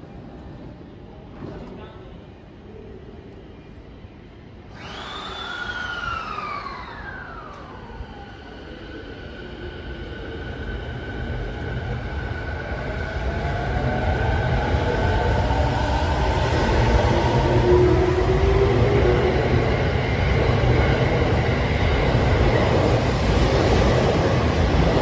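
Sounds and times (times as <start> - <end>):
electric train motor whine: 4.7 - 9.1
train rumble: 6.0 - 25.0.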